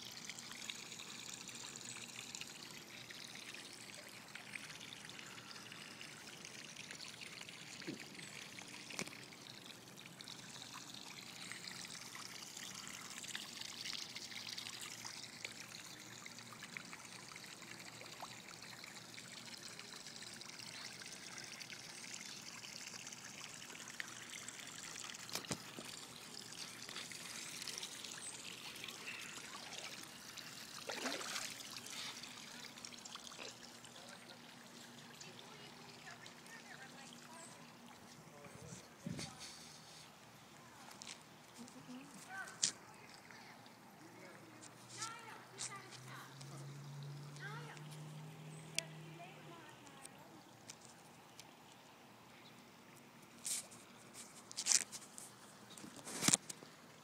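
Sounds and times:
water swish: 0:23.1 - 0:38.5.

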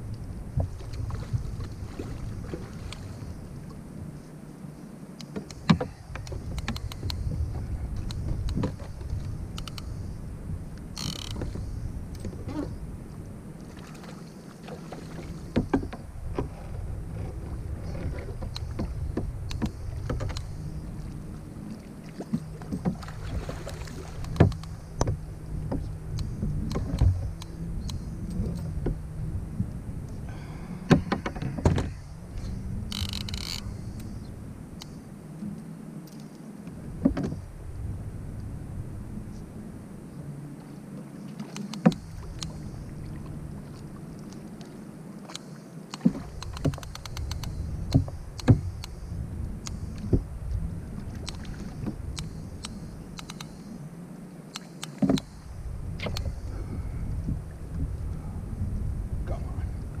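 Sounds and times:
steady low hum: 0:00.0 - 1:00.0
wind rumbling on microphone: 0:00.0 - 1:00.0
water slapping against kayak hull: 0:00.5 - 0:03.8, 0:13.6 - 0:27.6, 0:30.8 - 0:33.7, 0:41.3 - 0:49.0, 0:54.6 - 0:56.6
rod and reel knocks and clicks: 0:05.2 - 0:10.0, 0:10.9 - 0:12.7, 0:15.5 - 0:20.7, 0:24.2 - 0:29.0, 0:30.9 - 0:34.1, 0:45.3 - 0:49.0, 0:51.2 - 0:53.6.

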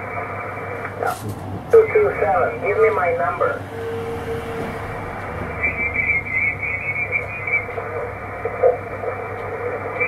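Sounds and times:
garbled radio signals: 0:00.0 - 0:03.6, 0:05.5 - 0:10.0
radio band hiss: 0:00.0 - 0:03.6, 0:05.6 - 0:10.0
high whistling tone: 0:05.5 - 0:07.7.

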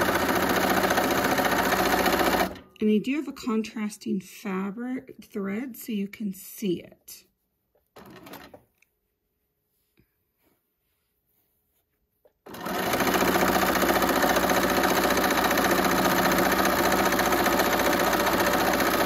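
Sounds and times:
sewing machine running: 0:00.0 - 0:02.6, 0:08.0 - 0:08.6, 0:12.4 - 0:19.0.

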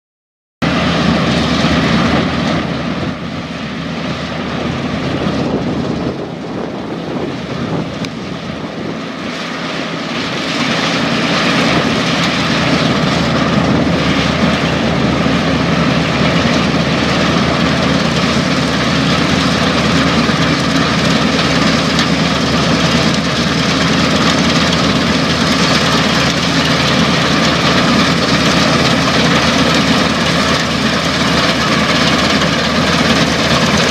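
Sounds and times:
combine harvester drone: 0:00.6 - 0:33.9.

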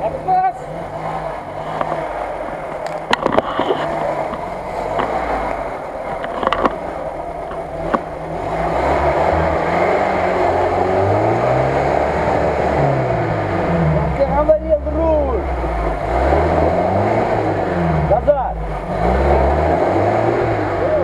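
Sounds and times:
off-road vehicle engine under load: 0:00.0 - 0:21.0.

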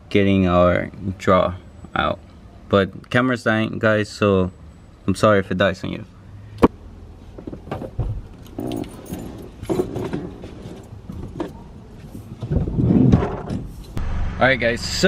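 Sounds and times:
handling clicks and rattles: 0:07.4 - 0:11.6
keys jangling: 0:08.3 - 0:10.9.

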